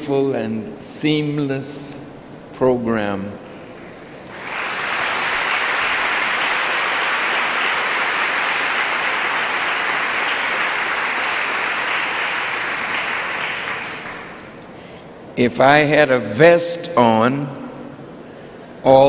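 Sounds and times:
audience applauding: 0:03.8 - 0:14.6.

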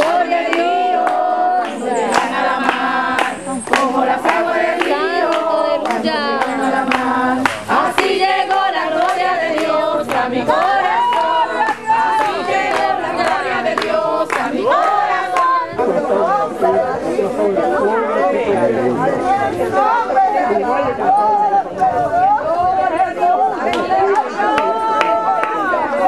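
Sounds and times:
people clapping along: 0:00.0 - 0:16.5, 0:23.3 - 0:26.0
congregation singing: 0:00.0 - 0:26.0.

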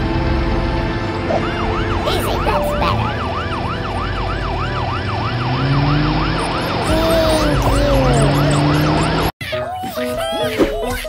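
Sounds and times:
siren yelping: 0:01.0 - 0:09.4.

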